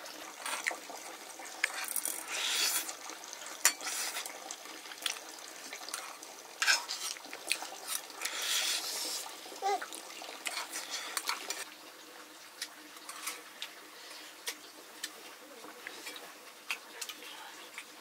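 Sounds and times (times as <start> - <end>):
metal utensils clinking on pots: 1.6 - 2.9, 3.5 - 4.3, 5.8 - 8.4
hiss: 2.2 - 2.9, 8.3 - 9.3.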